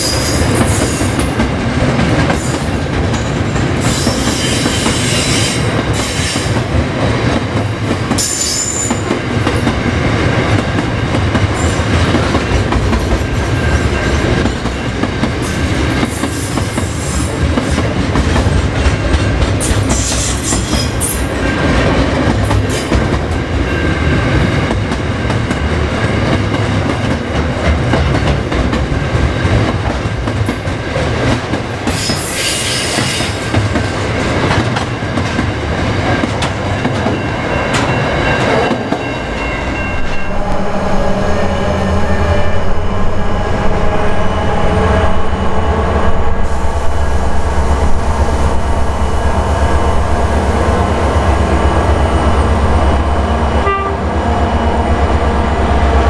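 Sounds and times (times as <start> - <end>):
train wheels clattering on rails: 0.0 - 40.3.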